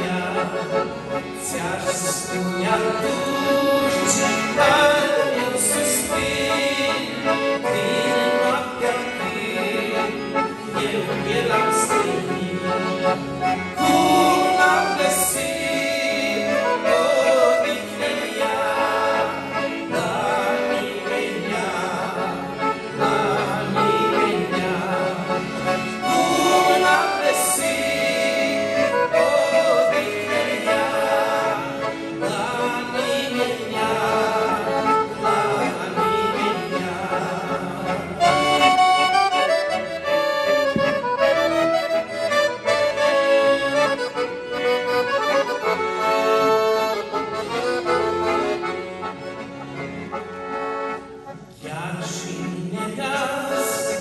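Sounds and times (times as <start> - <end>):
men singing: 0.0 - 39.0, 51.6 - 54.0
piano accordions playing: 0.0 - 54.0.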